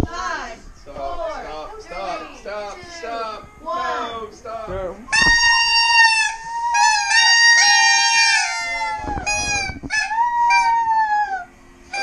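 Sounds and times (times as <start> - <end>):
party horns tooting: 5.1 - 10.7.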